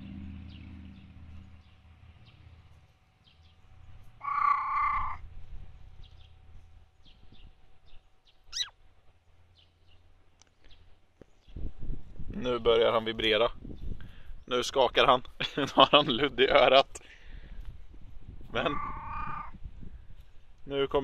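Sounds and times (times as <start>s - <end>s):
faint bird chirps: 0.5s - 11.7s
loud animal call: 4.2s - 5.4s, 8.5s - 8.8s, 18.6s - 19.6s
falling bird whistle: 8.5s - 8.8s.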